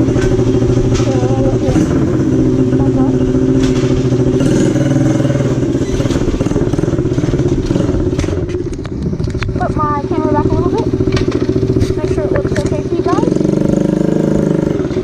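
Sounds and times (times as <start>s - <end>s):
quad engine running: 0.0s - 15.0s.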